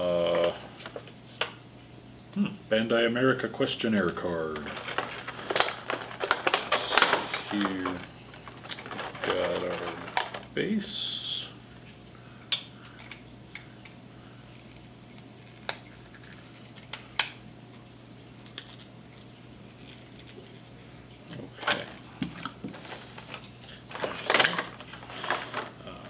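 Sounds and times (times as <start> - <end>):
plastic packaging clicks and taps: 4.0 - 10.4
plastic bag crinkling: 4.1 - 10.6, 21.6 - 26.0.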